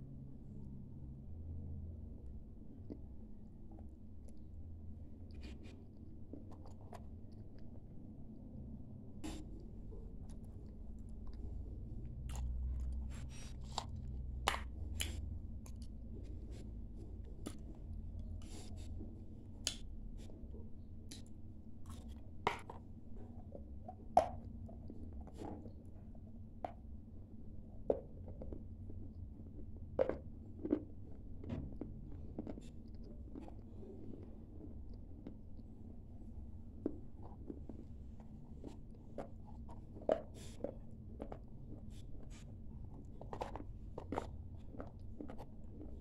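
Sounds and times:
clay crunched and chewed: 9.2 - 20.4, 21.1 - 22.9, 27.9 - 35.6, 36.8 - 46.0.

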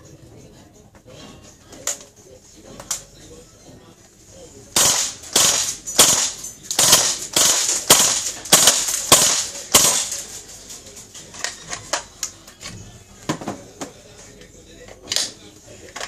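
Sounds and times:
airsoft gun shots cracking: 4.8 - 10.3.

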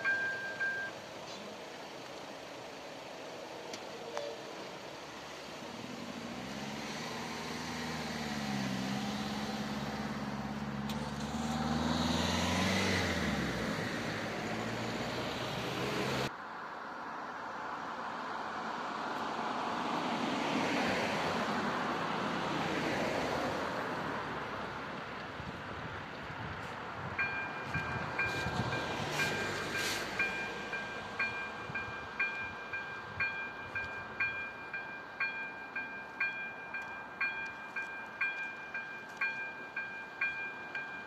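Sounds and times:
tyre noise of passing vehicles: 0.0 - 41.0
engine pulling away: 4.7 - 16.3.

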